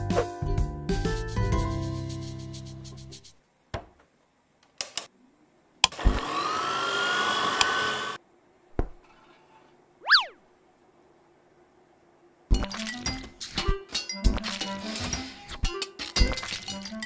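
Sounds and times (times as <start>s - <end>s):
thump: 8.8s - 9.0s.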